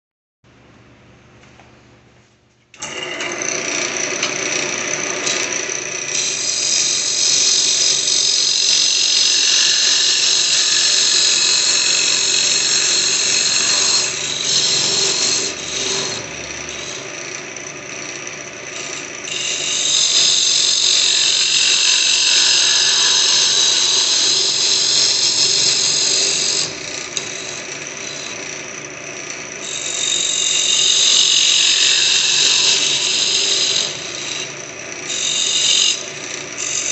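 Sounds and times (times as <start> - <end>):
lathe motor hum: 2.8 - 36.9
tool cutting wood hiss: 6.1 - 17.1, 18.8 - 28.5, 29.3 - 36.9.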